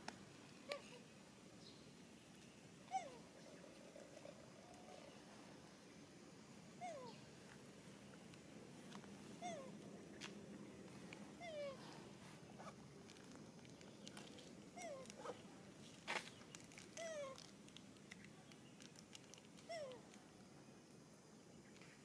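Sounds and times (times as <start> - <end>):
monkey infant crying: 6.8 - 7.2, 9.4 - 9.7, 14.8 - 15.1.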